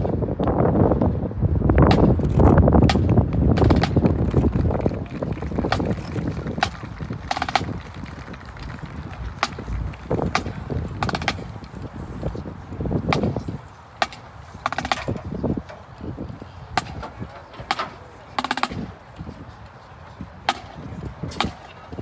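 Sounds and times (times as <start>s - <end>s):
low background murmur: 2.0s - 22.0s
snare drum rolls: 5.4s - 9.7s, 10.3s - 11.5s
drum clicks: 6.5s - 11.5s.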